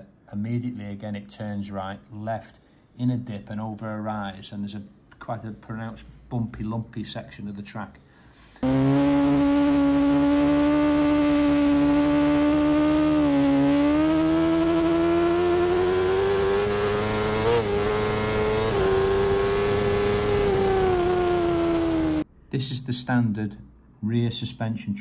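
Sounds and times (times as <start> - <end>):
motorcycle engine at high revs: 8.6 - 22.3.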